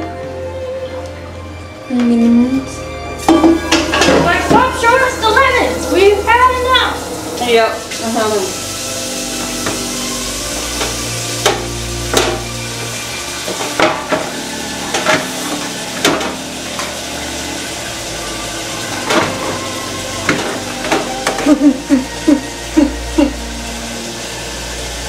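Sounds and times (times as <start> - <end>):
utensils and pans clinking: 3.2 - 17.5, 18.4 - 22.6.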